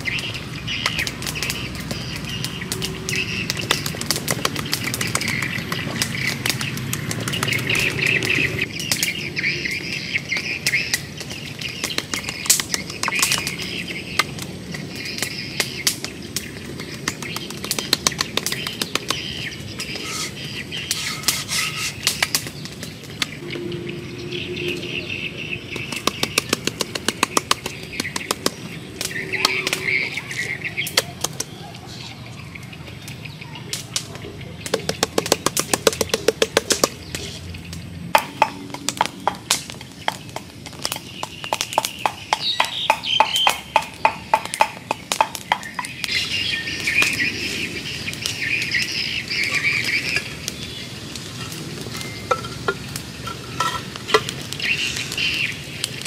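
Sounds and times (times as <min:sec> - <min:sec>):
birds chirping: 0:00.0 - 0:56.0
hands patting meat: 0:25.8 - 0:28.7, 0:34.7 - 0:37.3.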